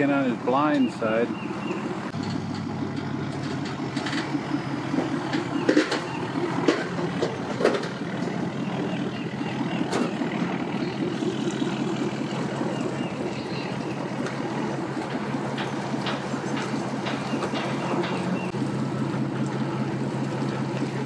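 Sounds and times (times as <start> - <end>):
truck engine running: 0.0 - 21.0
sharp knocks: 15.1 - 18.3.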